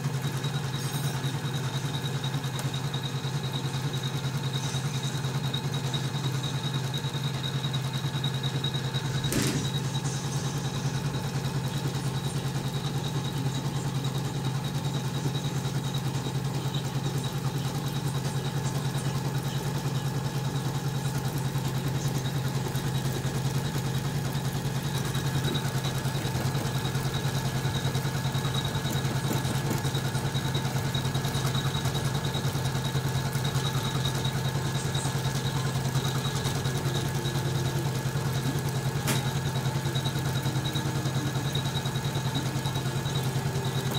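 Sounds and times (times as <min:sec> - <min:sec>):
embroidery machine stitching: 0:00.0 - 0:43.9
sharp click: 0:09.2 - 0:10.0, 0:39.0 - 0:39.3.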